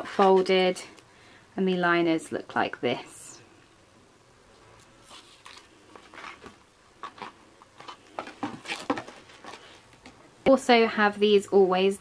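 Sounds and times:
cardboard box rustling and tapping: 6.3 - 10.1.

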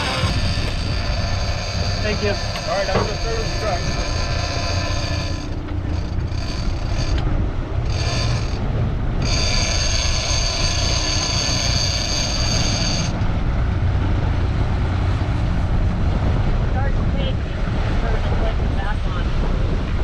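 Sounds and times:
fishing reel drag screaming: 0.0 - 7.2, 7.9 - 8.6, 9.2 - 13.2
boat engines rumbling: 0.0 - 20.0.

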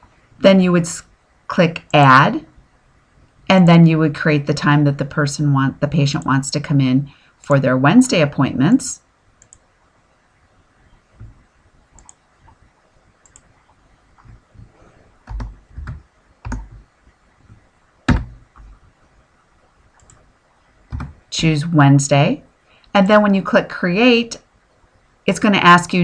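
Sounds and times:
mouse clicks: 9.4 - 9.6, 12.0 - 12.6, 13.2 - 13.5
keyboard keystrokes: 15.3 - 16.8, 20.9 - 21.2.

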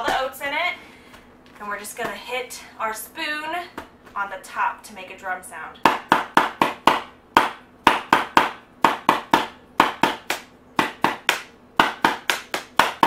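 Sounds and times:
wooden spoon drumming on cardboard canister: 5.8 - 13.0.

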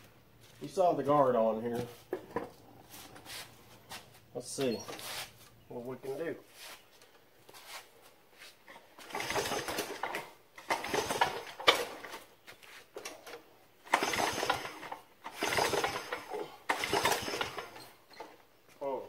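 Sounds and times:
engine turning over on recoil starter: 9.0 - 12.2, 13.1 - 18.4.

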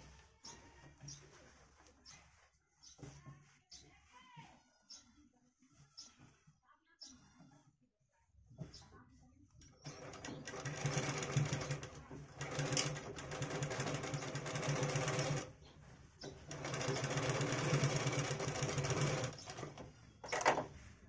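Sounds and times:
sewing machine stitching: 9.8 - 15.6, 16.2 - 20.7.

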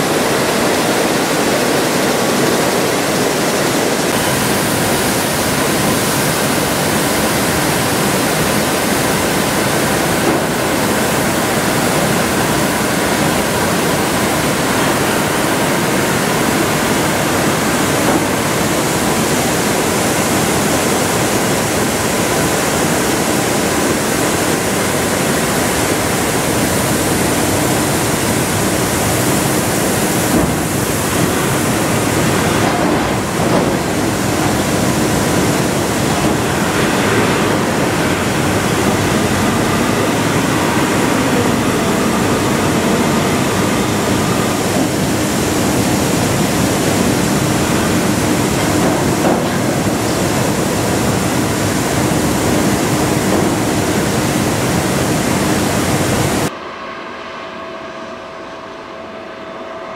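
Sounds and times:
grain machinery rushing: 0.0 - 56.5.

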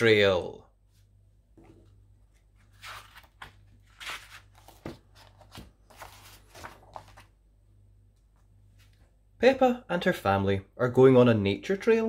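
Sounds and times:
low steady hum: 0.0 - 12.0
book pages rustling: 1.6 - 7.4, 8.4 - 9.1.

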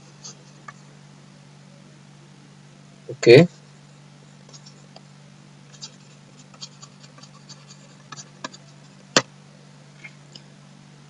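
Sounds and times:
low electrical hum: 0.0 - 11.0
stylus scratching on tablet: 4.5 - 4.9, 5.7 - 9.1.

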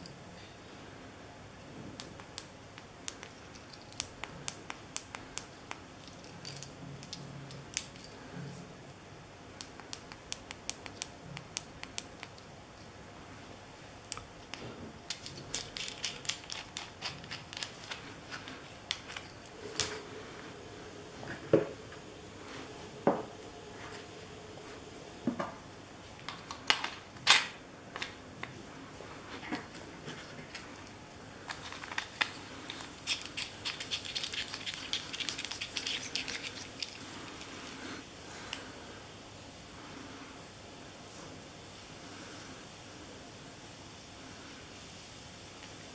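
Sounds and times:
metal parts clicking and knocking: 15.1 - 20.0.

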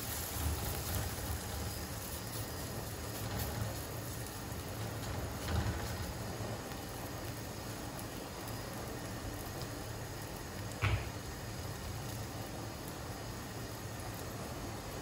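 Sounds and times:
kitchen hiss: 0.0 - 15.0
soft knock: 10.8 - 11.2.

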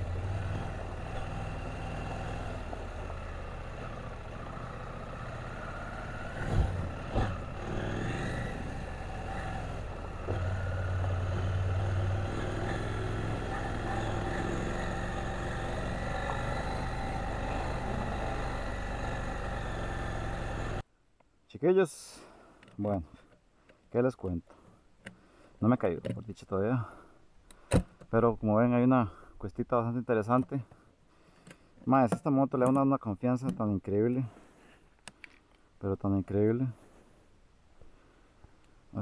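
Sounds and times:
motorcycle engine running: 0.0 - 20.8.

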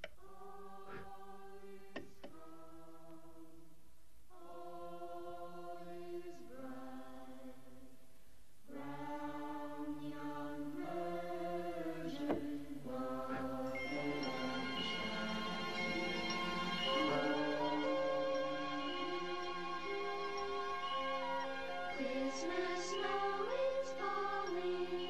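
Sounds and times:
choir singing held chords: 0.0 - 8.1, 8.7 - 25.0.

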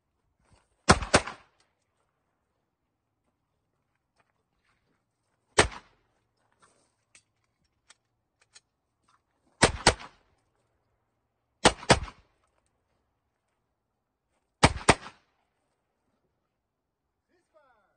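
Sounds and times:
pistol shots: 0.9 - 1.5, 5.6 - 5.9, 9.6 - 10.2, 11.6 - 12.2, 14.6 - 15.2.

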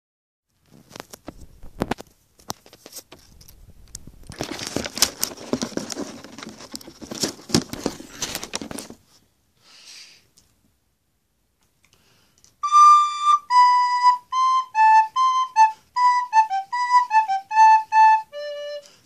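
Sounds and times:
soft hiss: 7.9 - 13.2.

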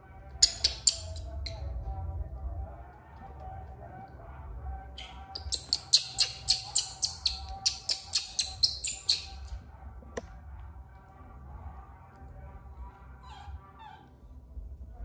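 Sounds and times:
high-pitched chirps: 5.0 - 9.5.

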